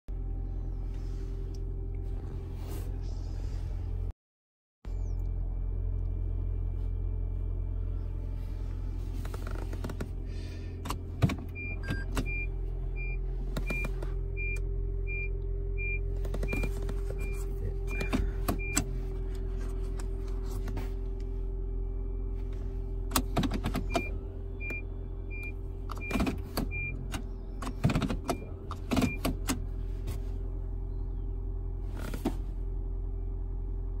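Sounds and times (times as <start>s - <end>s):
car cabin hum: 0.1s - 4.1s, 4.9s - 34.0s
gear shifter clicks and knocks: 9.1s - 10.2s, 10.8s - 12.4s, 13.5s - 14.6s, 16.1s - 21.3s, 23.0s - 30.2s
car chime beeping: 11.5s - 18.9s.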